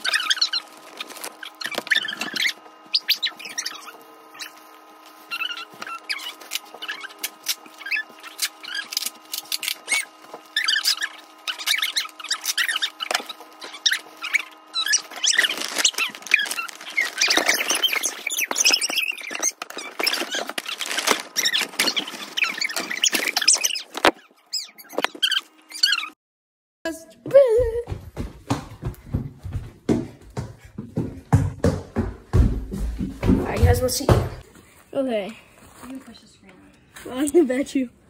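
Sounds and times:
paper and plastic crinkling: 0:00.0 - 0:02.8, 0:04.4 - 0:25.4.

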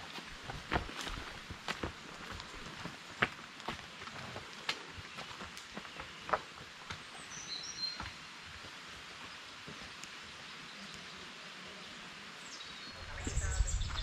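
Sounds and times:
faint footsteps on rock: 0:00.0 - 0:10.2.

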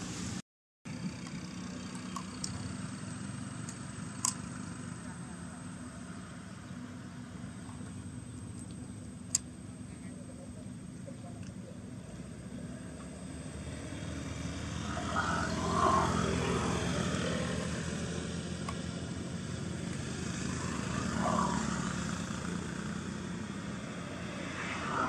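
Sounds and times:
distant engine drone: 0:00.0 - 0:25.0.

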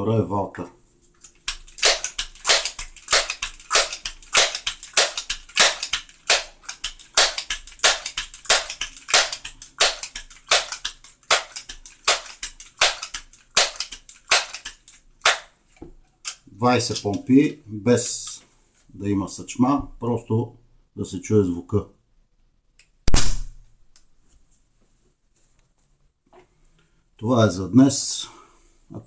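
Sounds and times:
air pistol pump strokes: 0:01.2 - 0:15.0.

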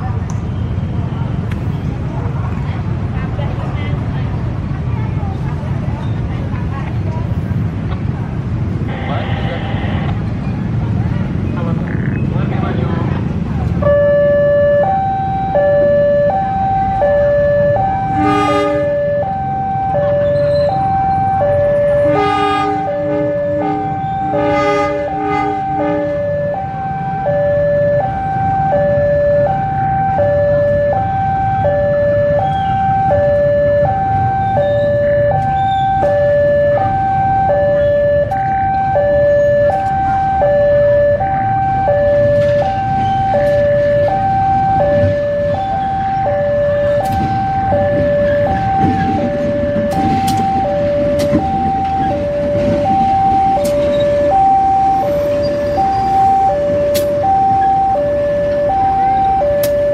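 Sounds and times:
diesel locomotive rumbling: 0:00.0 - 0:59.9
level crossing alarm ding-dong: 0:13.8 - 0:59.9
locomotive horn: 0:18.0 - 0:19.4, 0:21.8 - 0:27.2
wheels clicking over rail joints: 0:46.8 - 0:54.3.

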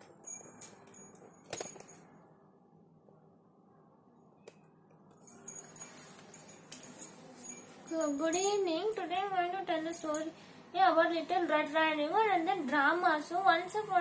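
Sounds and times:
small metal objects jingling: 0:00.1 - 0:02.0, 0:05.2 - 0:09.2, 0:09.8 - 0:10.3.

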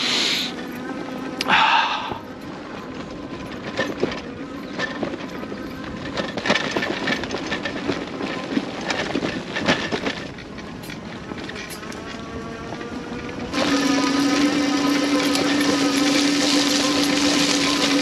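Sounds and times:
tyres rumbling on dirt: 0:00.0 - 0:18.0
bike knocking and rattling: 0:00.6 - 0:18.0.

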